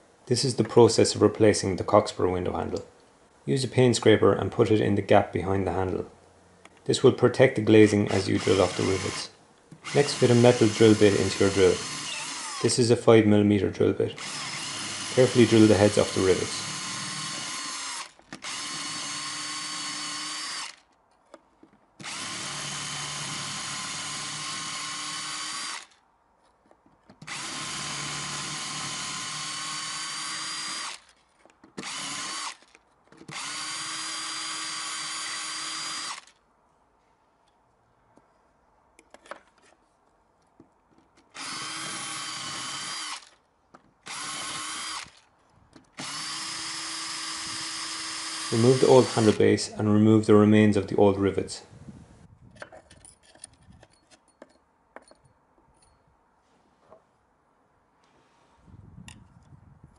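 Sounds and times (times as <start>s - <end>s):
cordless drill whining: 8.0s - 12.8s, 14.2s - 20.9s, 22.0s - 26.0s, 27.2s - 31.2s, 31.8s - 36.4s, 41.4s - 43.4s, 44.0s - 45.3s, 45.9s - 49.5s.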